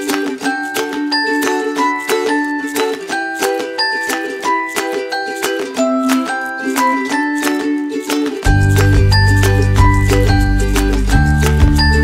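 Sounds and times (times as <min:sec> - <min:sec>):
bright melody of short notes: 0:00.0 - 0:12.0
deep steady bass: 0:08.5 - 0:12.0.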